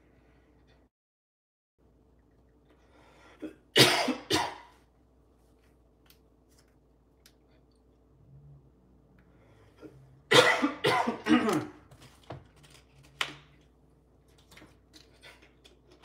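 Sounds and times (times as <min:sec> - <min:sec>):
man coughing hard: 0:03.7 - 0:04.7, 0:10.3 - 0:11.8.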